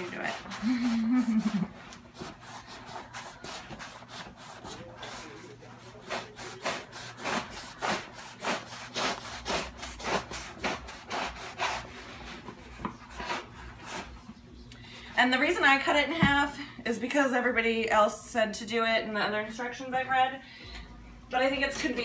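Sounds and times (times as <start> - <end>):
knife sawing through paper towels: 0.0 - 14.2.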